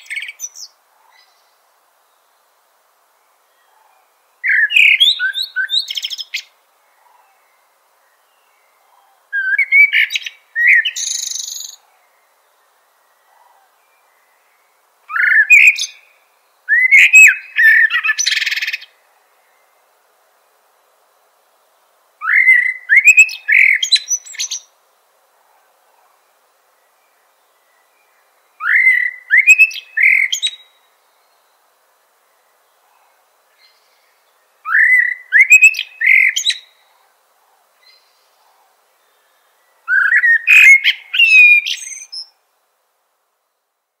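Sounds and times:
mockingbird whistling song: 4.4 - 6.5, 9.3 - 11.8, 15.1 - 16.1, 16.7 - 18.9, 22.2 - 24.7, 28.6 - 30.8, 34.6 - 36.8, 39.8 - 42.4
mockingbird singing: 15.1 - 16.1, 28.6 - 30.8, 34.6 - 36.8, 39.9 - 42.3.

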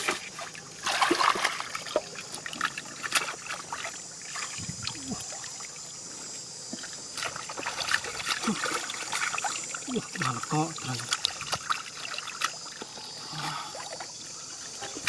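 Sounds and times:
hands splashing in muddy water: 0.0 - 5.3
water drips: 6.7 - 15.0.

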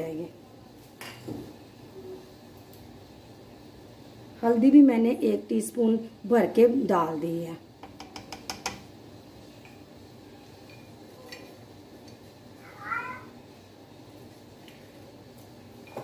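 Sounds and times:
spoon tapping metal pot rim: 7.8 - 8.9
cat meowing: 12.6 - 13.3.

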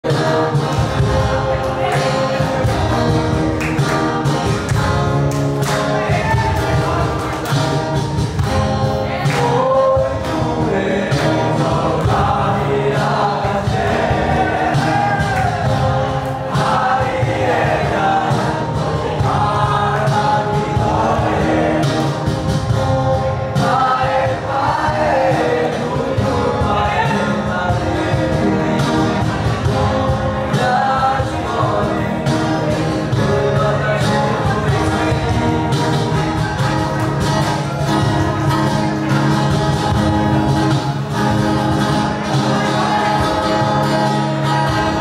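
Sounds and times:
acoustic guitars strumming: 0.0 - 45.0
cajon beat: 0.0 - 45.0
man singing: 9.0 - 22.3, 23.2 - 36.7.

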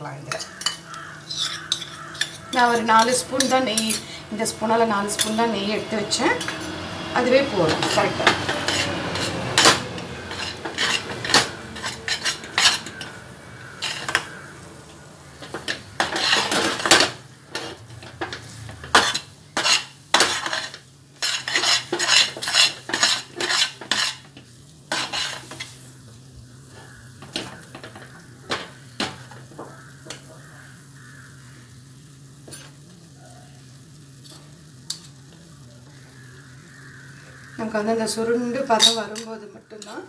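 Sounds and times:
spatula scraping steel pan: 0.3 - 14.5, 15.4 - 25.9.

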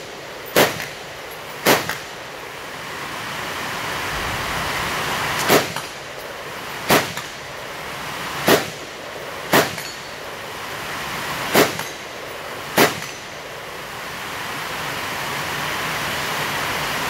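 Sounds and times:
steady hiss: 0.0 - 17.0
rifle shots: 0.5 - 2.2, 5.4 - 6.0, 6.8 - 7.4, 8.4 - 8.8, 9.5 - 10.0, 11.5 - 12.0, 12.7 - 13.2.

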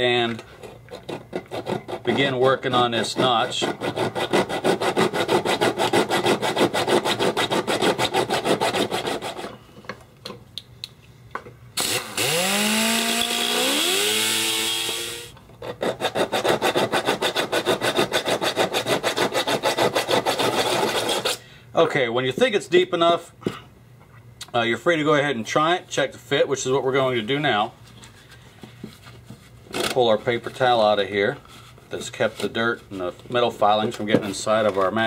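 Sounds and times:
file rasping on steel: 1.0 - 9.6, 15.6 - 21.4
rotary tool whining: 11.8 - 15.4.

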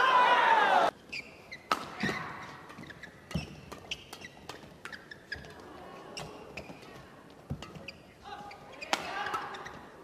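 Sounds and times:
shoes squeaking on court: 1.0 - 10.0
rackets striking shuttlecock: 1.5 - 5.5.

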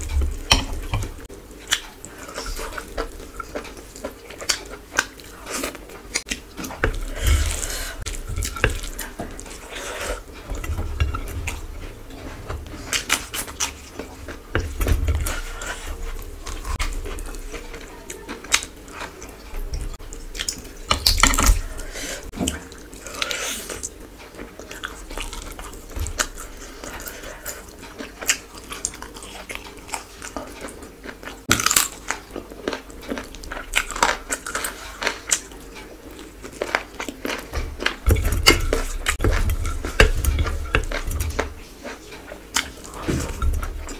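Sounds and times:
person chewing food: 0.0 - 43.9.

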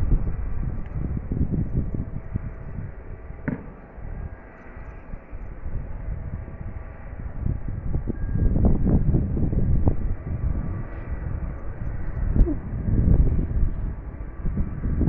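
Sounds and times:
distant jet engine rumble: 0.0 - 15.0
wind on microphone: 0.0 - 15.0.

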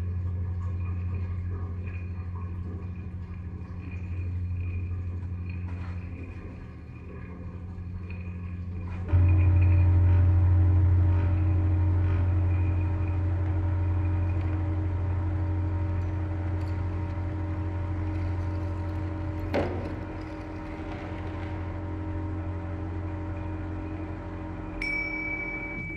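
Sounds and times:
low droning hum: 0.0 - 25.9
held tones: 21.5 - 25.9.

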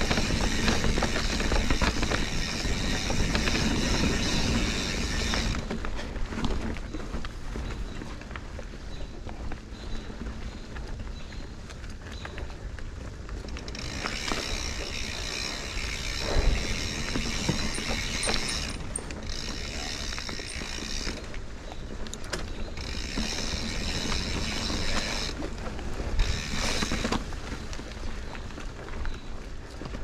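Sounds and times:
bike ratcheting and rattling: 0.0 - 7.2, 13.0 - 28.0.

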